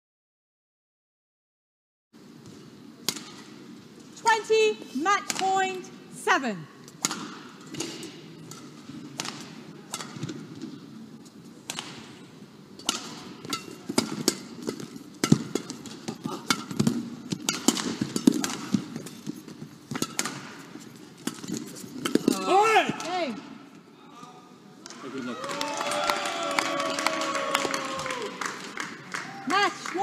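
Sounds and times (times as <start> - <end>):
rackets striking shuttlecock: 3.0 - 3.6, 6.9 - 10.8, 11.6 - 23.2.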